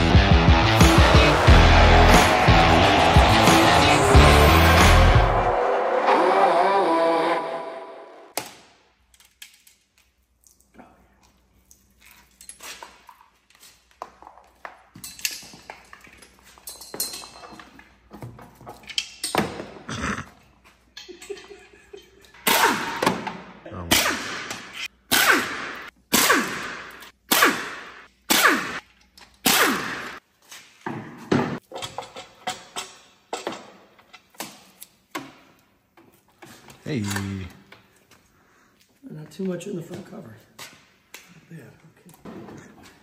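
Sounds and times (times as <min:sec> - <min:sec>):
metal parts clicking and knocking: 0:31.7 - 0:34.5.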